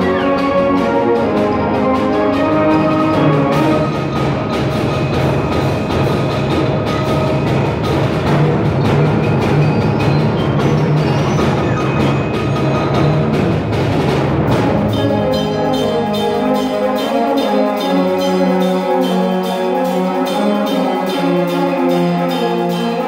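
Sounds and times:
percussion strikes: 0.0s - 23.0s
wind band playing fast music: 0.0s - 23.0s.

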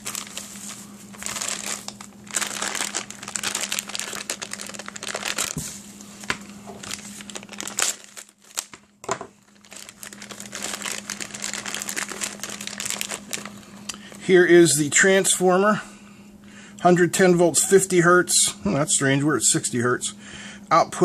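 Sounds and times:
plastic packaging crinkling: 0.0s - 14.2s
faint steady hum: 0.0s - 21.0s.

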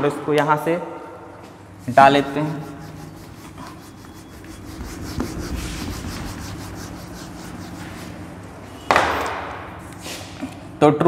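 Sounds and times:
eraser rubbing on whiteboard: 2.0s - 8.4s.

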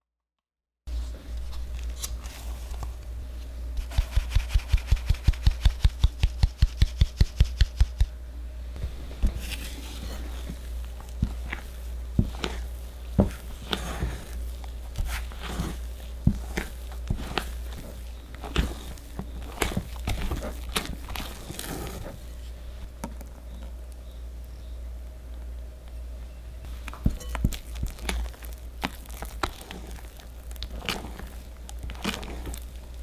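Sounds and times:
spatula scraping glass bowl: 9.4s - 22.3s.

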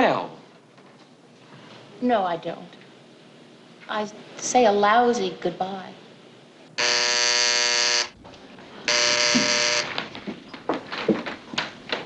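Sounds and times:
door buzzer: 6.8s - 8.2s, 8.9s - 10.0s.

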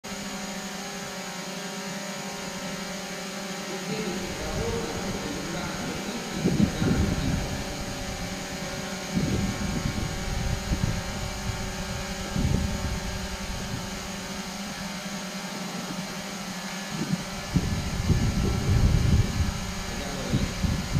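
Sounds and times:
hall background hum: 0.1s - 20.9s
low rumbles: 3.9s - 15.0s, 16.9s - 20.9s.

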